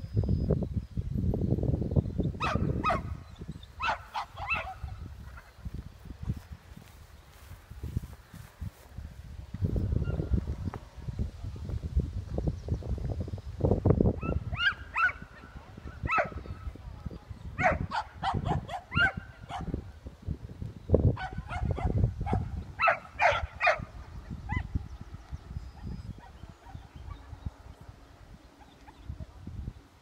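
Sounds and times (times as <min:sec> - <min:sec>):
low rumble gusts: 0:00.0 - 0:30.0
dog barking in short high barks: 0:02.4 - 0:03.1.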